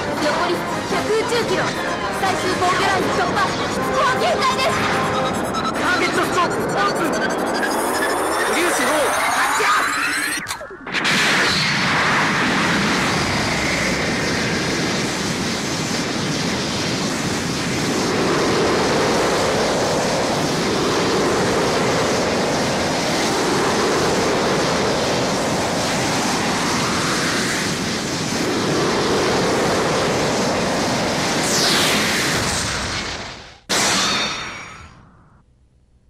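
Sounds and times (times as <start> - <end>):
sweeping tones rising and falling: 0.0 - 12.2
continuous rushing whoosh: 0.0 - 33.7
sudden blast: 10.8 - 17.5.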